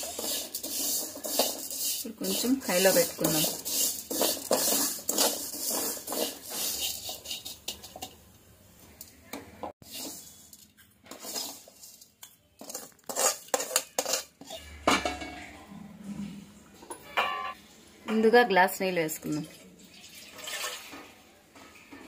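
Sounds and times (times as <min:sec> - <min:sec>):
metal spatula scraping a pan: 0:00.0 - 0:08.2, 0:09.8 - 0:15.6
metal clanks: 0:13.5 - 0:15.6.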